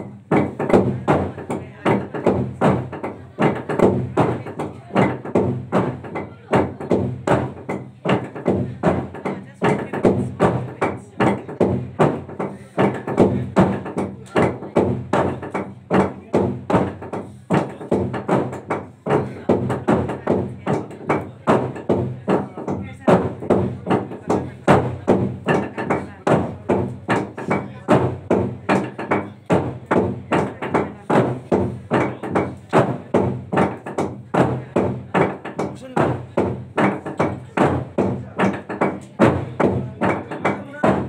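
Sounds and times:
log drum beaten with sticks: 0.0s - 41.0s.

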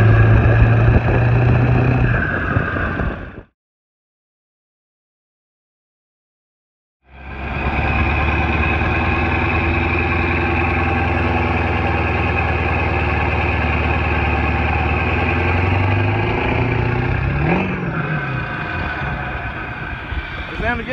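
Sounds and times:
diesel engine idling: 7.0s - 20.9s.

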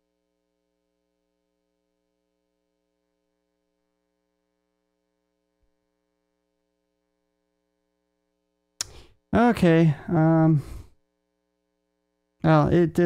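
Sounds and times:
faint mains hum: 0.0s - 13.0s
sharp click: 8.8s - 9.0s.

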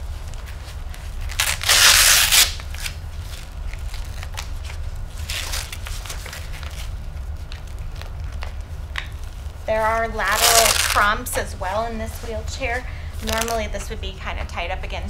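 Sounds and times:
strap rustling: 0.0s - 14.0s
velcro strap ripping: 0.4s - 9.2s, 10.3s - 11.3s, 13.2s - 13.7s.

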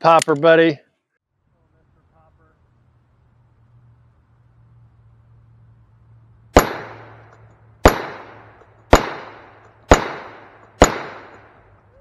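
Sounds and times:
revolver shots: 6.5s - 11.6s.

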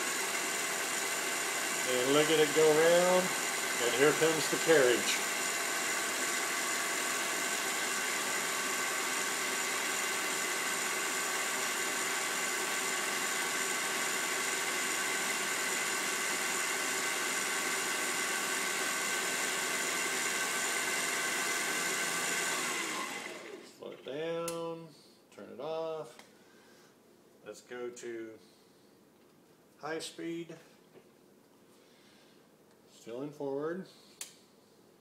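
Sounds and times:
lathe motor and gears whining: 0.0s - 23.6s.

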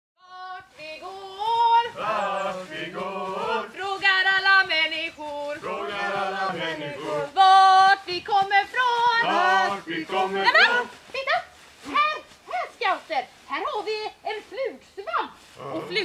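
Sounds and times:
group of people singing: 0.2s - 11.0s.

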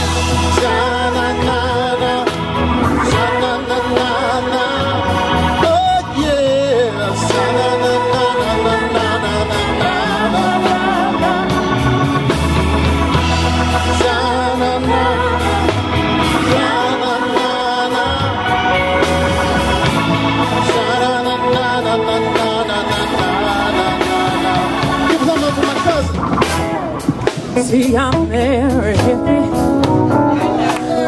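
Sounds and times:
bass: 0.0s - 31.0s
drums: 0.0s - 31.0s
electric guitar: 0.0s - 31.0s
keyboard: 0.0s - 31.0s
woman singing: 27.6s - 29.9s.

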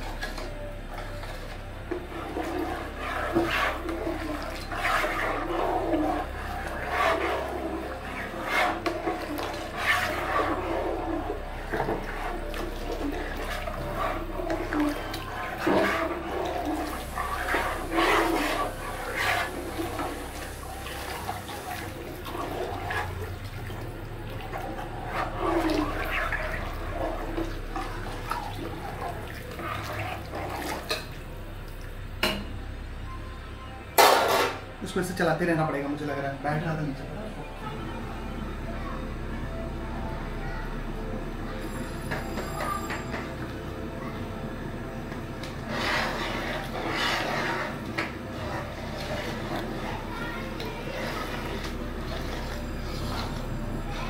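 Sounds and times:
liquid sloshing in pot: 0.0s - 32.0s, 45.1s - 54.0s.

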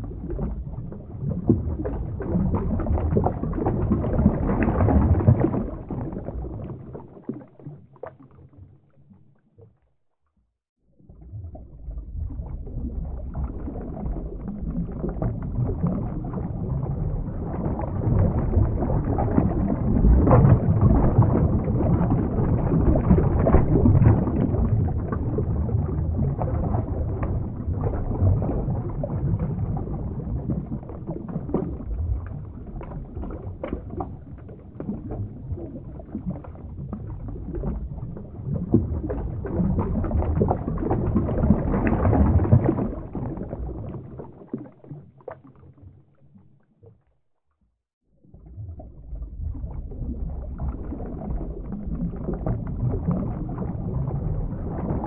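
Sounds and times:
muffled underwater water rush: 0.0s - 55.0s
small bubbling pops: 12.2s - 45.9s.

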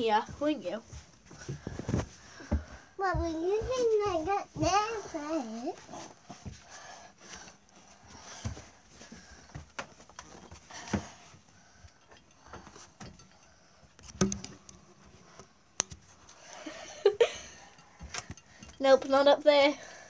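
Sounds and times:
rummaging knocks and rustles: 0.0s - 6.6s.

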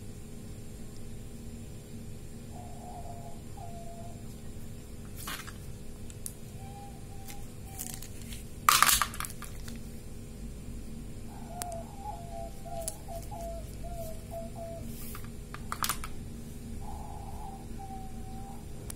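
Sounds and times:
small clatter: 7.8s - 9.8s.

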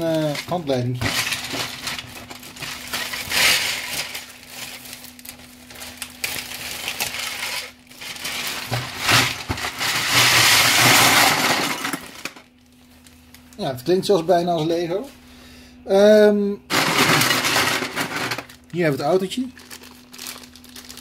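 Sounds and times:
plastic pieces clattering into a box: 0.0s - 12.5s, 16.7s - 18.8s
plastic bag rustling: 0.0s - 15.1s, 16.7s - 21.0s.

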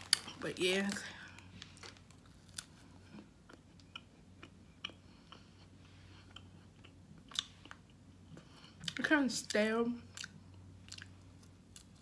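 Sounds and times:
chewing with soft mouth clicks: 2.6s - 9.0s.

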